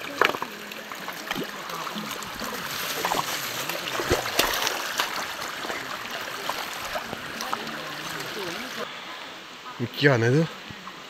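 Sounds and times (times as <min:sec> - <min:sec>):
stones knocking in water: 0:00.0 - 0:08.8
water splashing: 0:00.0 - 0:08.9
stream running over stones: 0:00.0 - 0:11.0.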